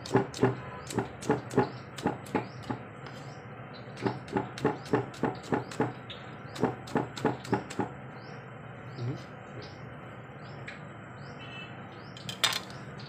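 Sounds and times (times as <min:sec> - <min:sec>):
knife chopping on wooden board: 0:00.0 - 0:02.8, 0:04.0 - 0:06.0, 0:06.6 - 0:07.9.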